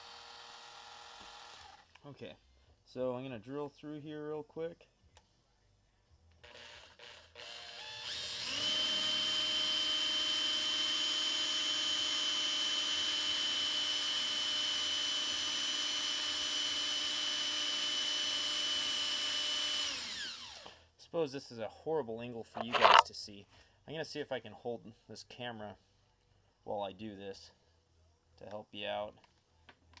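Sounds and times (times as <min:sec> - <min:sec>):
electric drill drilling into metal: 0:00.0 - 0:01.9, 0:06.5 - 0:20.8, 0:22.6 - 0:23.0.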